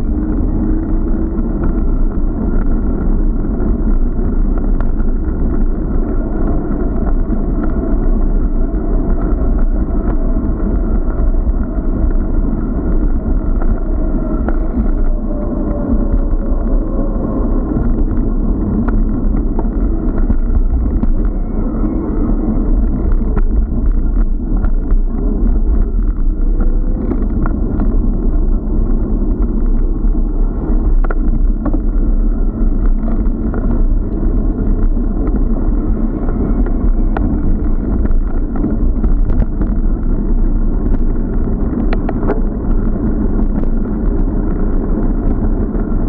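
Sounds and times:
wind rumble on microphone: 0.0s - 46.0s.

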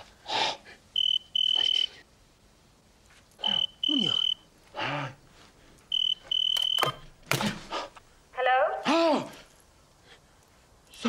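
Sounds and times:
telephone ringing electronic trill: 3.4s - 4.4s.

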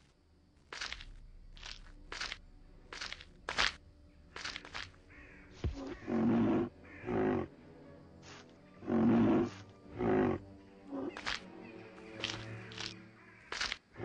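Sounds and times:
crunching footsteps: 0.0s - 6.1s, 11.1s - 11.4s, 12.0s - 14.0s.

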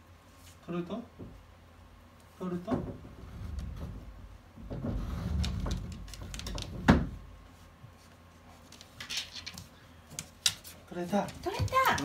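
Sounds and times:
ball scraping against refrigerator: 3.0s - 6.9s.

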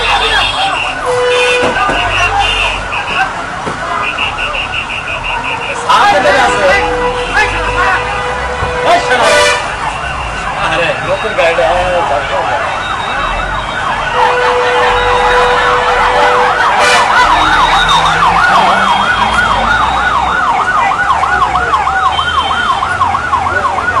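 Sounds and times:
siren yelping: 9.0s - 24.0s.

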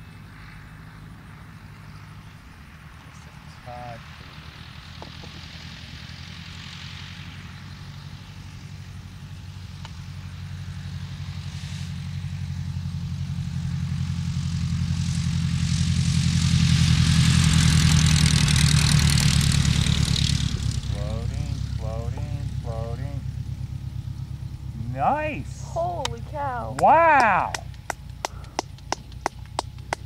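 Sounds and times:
light plane engine and propeller: 0.0s - 30.0s
propeller hiss: 17.2s - 30.0s.

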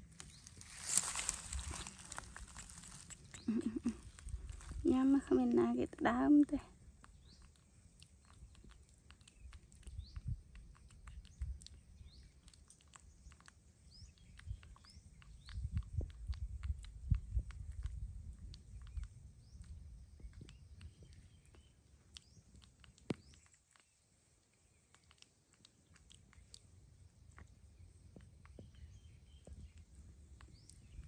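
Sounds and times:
monkey chewing: 0.0s - 4.8s, 6.6s - 31.0s
bird chirps: 3.0s - 4.0s, 27.7s - 31.0s.

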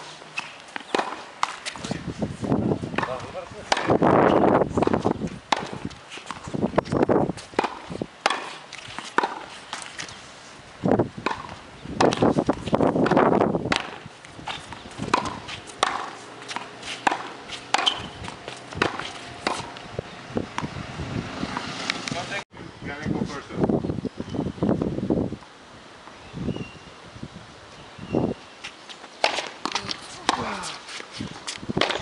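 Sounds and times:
tennis ball bouncing on hard court: 0.4s - 1.9s, 2.9s - 7.0s, 7.6s - 9.9s, 11.2s - 19.8s, 20.5s - 20.7s, 29.2s - 30.6s, 31.8s - 32.0s
tennis ball struck by rackets: 0.4s - 2.0s, 2.9s - 10.1s, 11.2s - 19.8s, 20.5s - 20.7s, 29.2s - 30.7s, 31.8s - 32.0s.

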